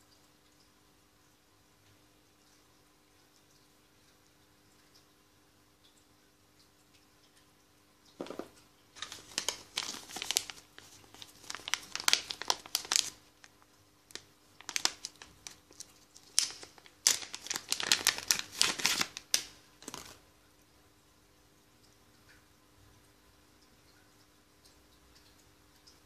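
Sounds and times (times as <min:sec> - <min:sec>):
paper crinkling and rustling: 0:09.0 - 0:20.2.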